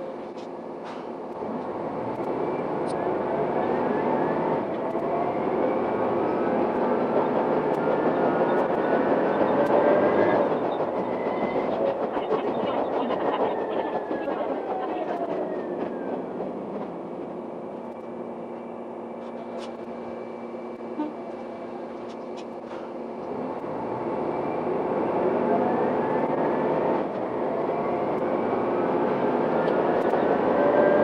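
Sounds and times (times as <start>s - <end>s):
railcar running noise and whine: 0.0s - 31.0s.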